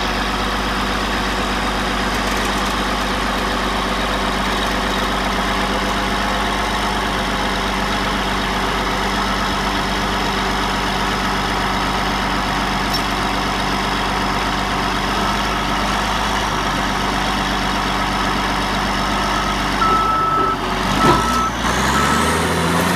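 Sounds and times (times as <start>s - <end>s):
bulldozer diesel engine running: 0.0s - 22.9s
reversing alarm beeping: 19.2s - 22.4s.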